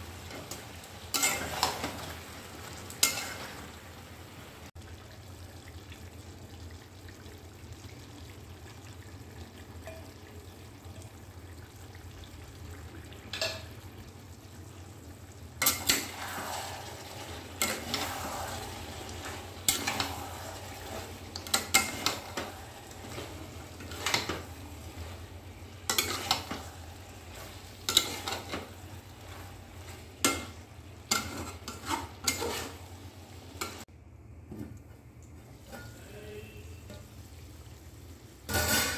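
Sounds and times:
curry frying with low hiss: 0.0s - 38.9s
spatula scraping and knocking pan: 15.6s - 24.5s, 25.8s - 32.9s.

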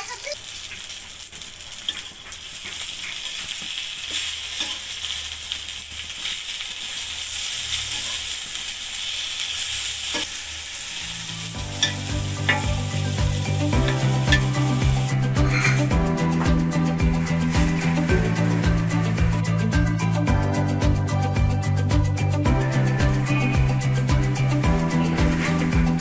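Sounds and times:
eggplant sizzling in oil: 0.0s - 19.4s
metal spatula clicks and scrapes: 0.5s - 8.6s
music with steady beat: 11.5s - 26.0s.

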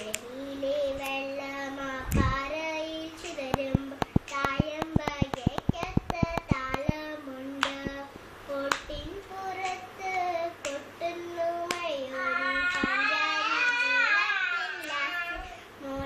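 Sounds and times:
hand claps: 3.2s - 7.0s, 7.6s - 8.0s, 8.6s - 9.0s, 9.6s - 9.9s, 10.6s - 10.8s, 11.7s - 11.9s, 14.8s - 15.6s.

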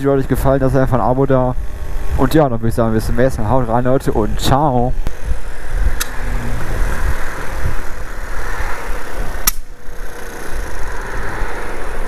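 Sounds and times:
wind rush: 0.0s - 12.0s
scooter engine running: 5.3s - 12.0s
sharp click: 6.0s - 6.2s, 9.4s - 9.7s.

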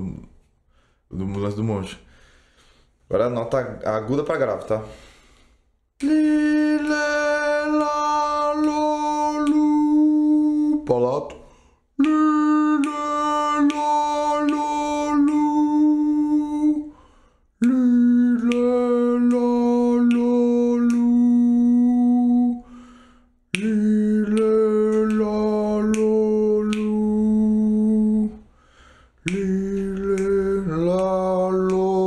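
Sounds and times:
man singing long vowel notes: 6.0s - 17.0s, 17.6s - 28.6s, 29.2s - 32.0s.

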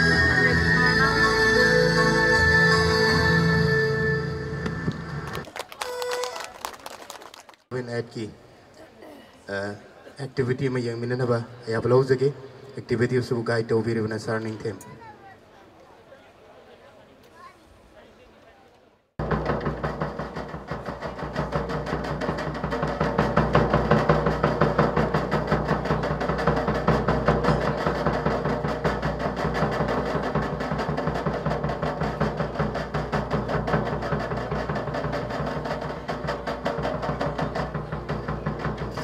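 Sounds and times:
large drum beaten with stick: 19.2s - 39.0s
other percussion: 19.2s - 39.0s.

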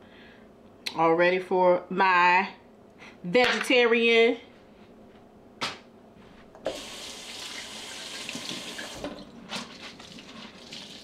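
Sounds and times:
tap water running into sink: 6.7s - 11.0s.

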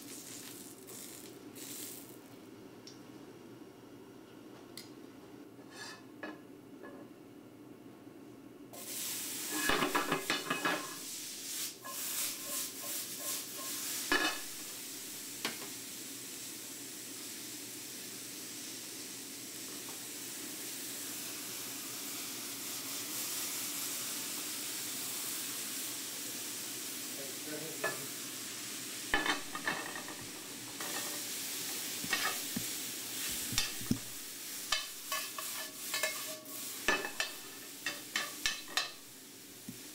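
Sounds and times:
tomatoes sizzling in skillet: 0.0s - 2.4s, 8.7s - 39.9s
metal tongs clinking on pan: 32.1s - 32.5s, 34.7s - 39.0s.

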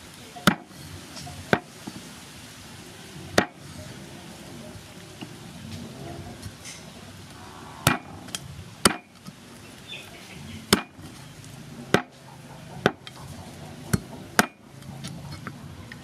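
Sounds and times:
cleaver chopping on wooden block: 7.9s - 8.1s, 8.8s - 9.1s, 10.7s - 11.0s, 11.9s - 12.2s, 13.9s - 14.6s.

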